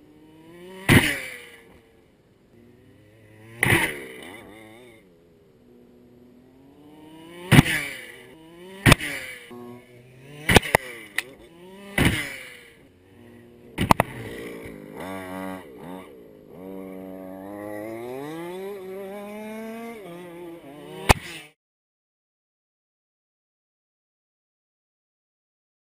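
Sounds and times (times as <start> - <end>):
toy car motor revving: 5.7 - 21.6
sharp knocks: 11.9 - 12.3.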